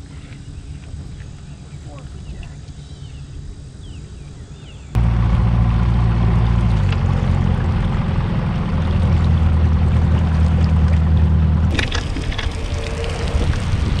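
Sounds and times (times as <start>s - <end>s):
outboard motor humming: 0.0s - 14.0s.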